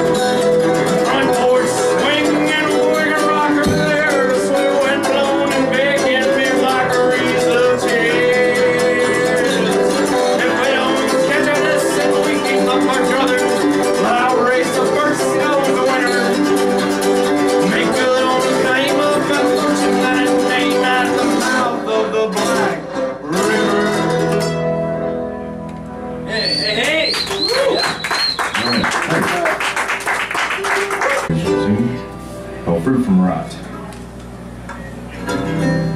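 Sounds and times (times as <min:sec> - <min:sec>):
mandolin: 0:00.0 - 0:26.2, 0:31.3 - 0:32.3
acoustic guitars strumming: 0:00.0 - 0:35.9
man singing into a microphone: 0:00.9 - 0:16.5, 0:17.5 - 0:24.2
high wavering whistle: 0:26.3 - 0:28.9
people cheering: 0:26.3 - 0:31.3.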